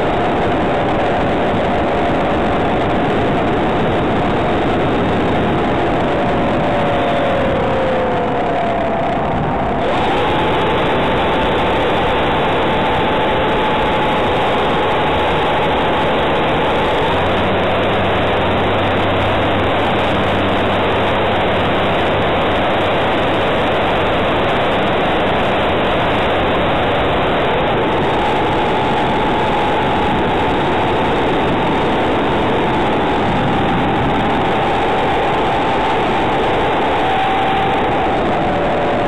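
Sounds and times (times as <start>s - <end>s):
low hum: 0.0s - 39.0s
model aeroplane motor running: 0.0s - 39.0s
wind rush: 0.0s - 39.0s.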